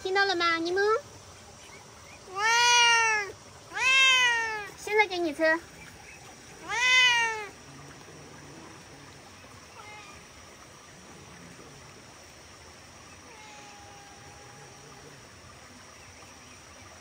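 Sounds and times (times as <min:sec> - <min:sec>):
cat meowing: 0:02.3 - 0:04.8, 0:06.6 - 0:07.6, 0:09.7 - 0:10.2, 0:13.2 - 0:14.9.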